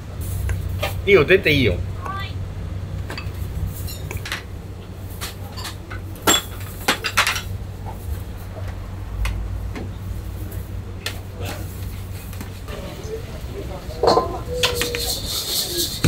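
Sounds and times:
steady low hum: 0.0s - 16.0s
ceramic dishes clinking: 3.1s - 4.4s, 5.5s - 7.5s, 14.0s - 15.2s.

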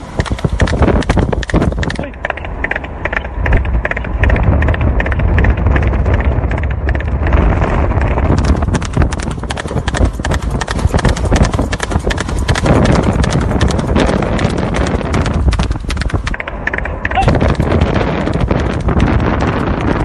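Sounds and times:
low mechanical rumble: 0.0s - 20.0s
rapid clattering clicks: 0.0s - 20.0s.

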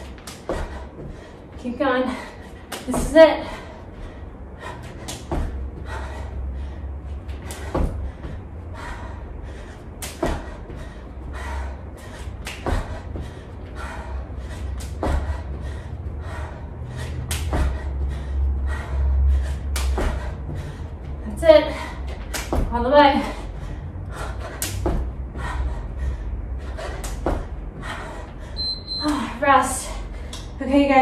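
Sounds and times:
steady low rumble: 0.0s - 31.0s
sneakered feet thudding on floor: 4.9s - 6.2s, 7.1s - 8.6s, 27.0s - 28.1s.

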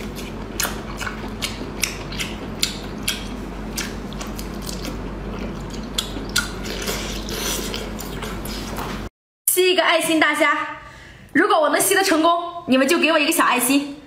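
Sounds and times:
wet chewing clicks and smacks: 0.0s - 8.4s.

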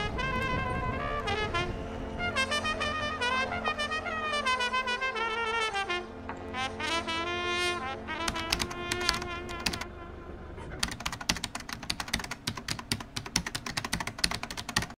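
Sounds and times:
brass-led music: 0.0s - 10.8s
rapid sharp clicks: 8.3s - 9.8s, 10.8s - 15.0s.

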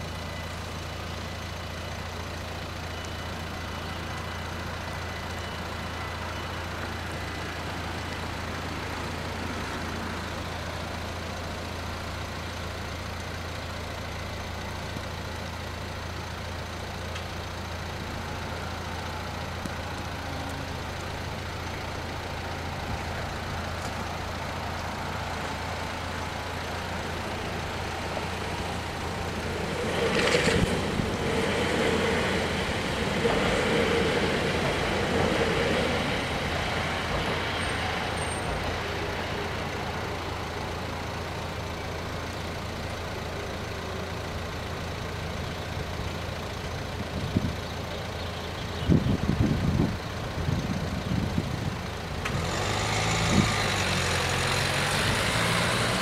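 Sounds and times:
electric train passing: 3.3s - 11.6s, 18.0s - 41.6s, 51.7s - 56.0s.

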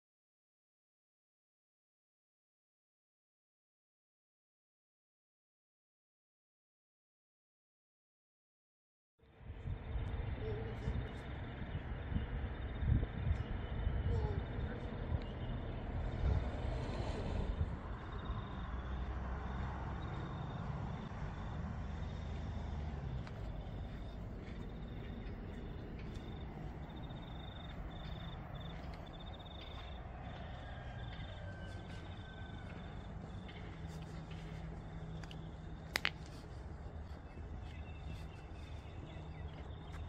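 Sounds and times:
low rumble: 9.2s - 39.9s.

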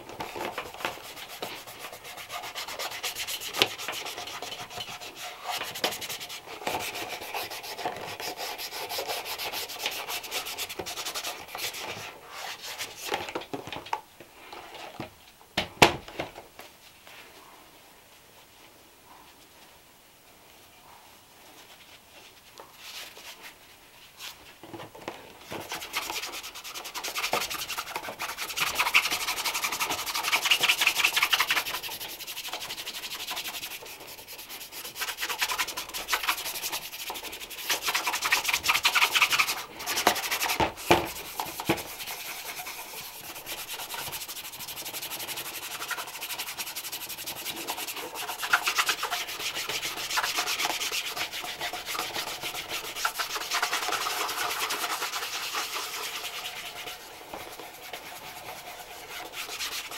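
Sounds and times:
brush rubbing leather shoe: 0.3s - 13.1s, 25.5s - 59.9s.

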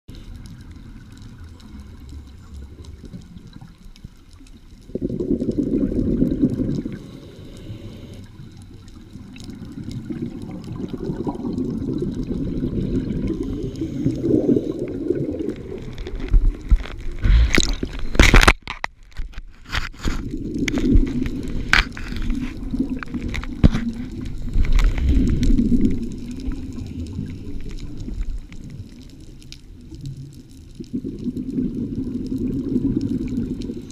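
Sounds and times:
scuba regulator exhalation bubbles: 4.9s - 7.1s, 9.6s - 18.5s, 20.0s - 28.7s, 30.8s - 33.9s.

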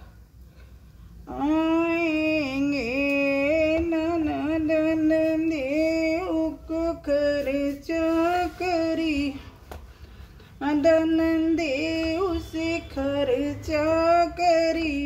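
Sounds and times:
woman singing unaccompanied: 1.2s - 9.6s, 10.6s - 15.0s.

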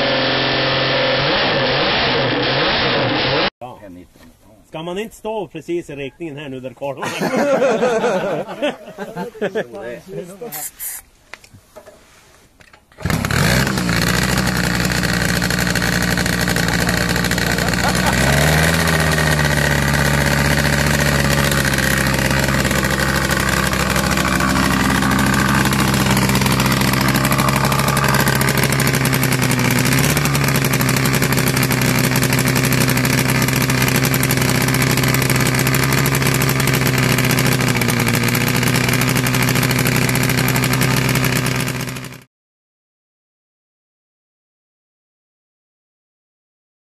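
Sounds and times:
motorcycle engine running: 13.0s - 42.3s.

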